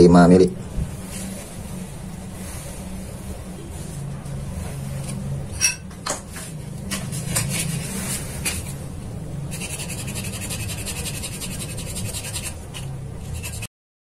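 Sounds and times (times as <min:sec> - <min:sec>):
fast rasping of metal: 0:09.5 - 0:13.7.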